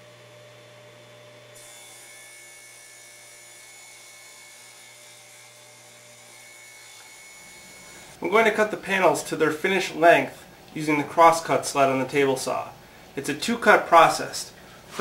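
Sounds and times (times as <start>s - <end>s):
table saw motor hum and whine: 0.0s - 8.2s.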